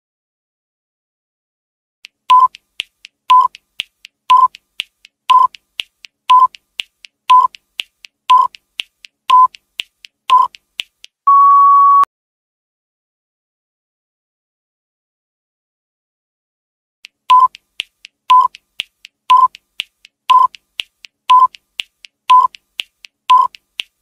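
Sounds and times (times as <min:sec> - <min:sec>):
soft ticks: 0:02.0 - 0:11.2, 0:17.0 - 0:24.0
short timer beeps: 0:02.3 - 0:02.6, 0:03.3 - 0:03.6, 0:04.3 - 0:04.6, 0:05.3 - 0:05.6, 0:06.3 - 0:06.6, 0:07.3 - 0:07.6, 0:08.3 - 0:08.6, 0:09.3 - 0:09.6, 0:10.3 - 0:10.6, 0:11.3 - 0:12.1, 0:17.3 - 0:17.6, 0:18.3 - 0:18.6, 0:19.3 - 0:19.6, 0:20.3 - 0:20.6, 0:21.3 - 0:21.6, 0:22.3 - 0:22.6, 0:23.3 - 0:23.6
long higher beep: 0:11.3 - 0:12.1.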